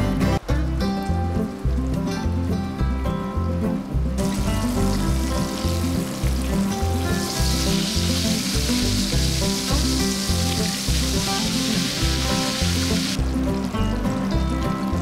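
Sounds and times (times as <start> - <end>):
background music with steady beat: 0.0 - 15.0
chicken sizzling in hot oil: 4.2 - 15.0.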